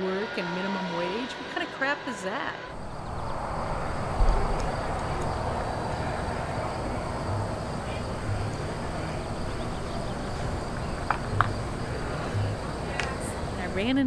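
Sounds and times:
outdoor background noise: 0.0s - 14.0s
low thump: 3.2s - 5.0s.

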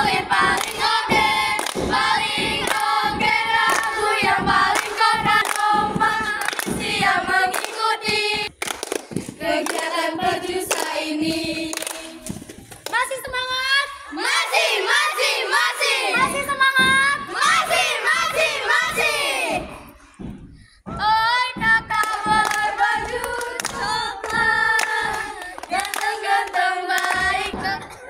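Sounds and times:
girls singing in unison: 0.0s - 8.5s, 9.3s - 12.4s, 13.8s - 20.2s, 20.9s - 28.0s
hands clapping: 0.0s - 13.2s, 21.9s - 28.0s.

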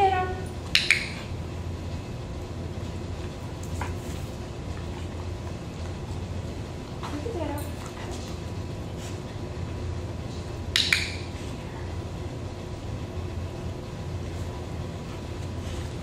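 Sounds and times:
low room hum: 0.0s - 16.0s
sharp double click: 0.7s - 1.2s, 10.7s - 11.2s.

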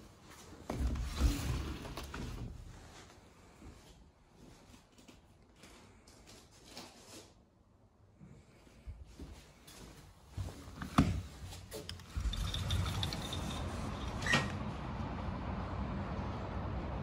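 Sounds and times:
wind: 8.8s - 17.0s
city noise rumble: 9.6s - 17.0s
sliding door clunking and knocking: 10.8s - 15.0s.

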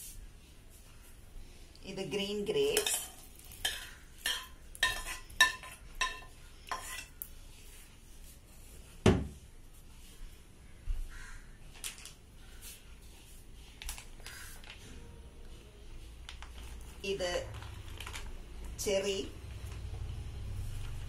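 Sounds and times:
metal pot clinking against bowl: 2.7s - 7.1s.

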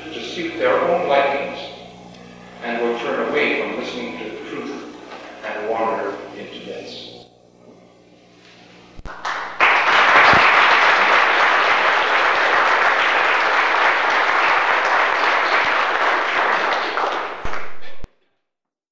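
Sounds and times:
audience applauding: 9.1s - 18.1s.

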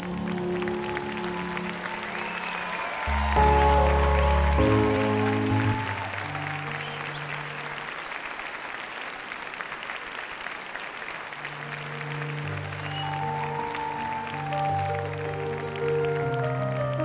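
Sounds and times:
crowd applauding: 0.0s - 17.0s
music with slow held notes: 11.6s - 17.0s.

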